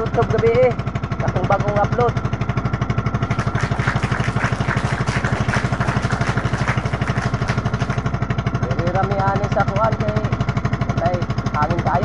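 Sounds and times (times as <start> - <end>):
boat engine puttering: 2.7 - 12.0.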